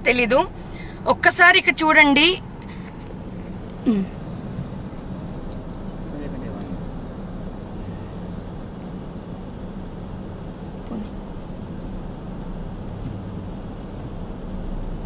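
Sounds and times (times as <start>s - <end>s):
low engine hum: 0.0s - 15.0s
street traffic noise: 0.0s - 15.0s.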